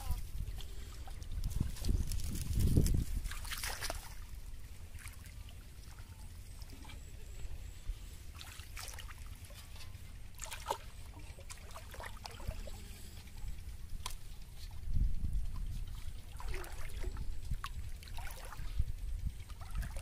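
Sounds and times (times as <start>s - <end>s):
steady low rumble: 0.0s - 20.0s
water trickling and sloshing: 0.0s - 20.0s
splashes: 3.2s - 7.1s, 8.3s - 12.9s, 15.9s - 18.8s, 19.4s - 20.0s.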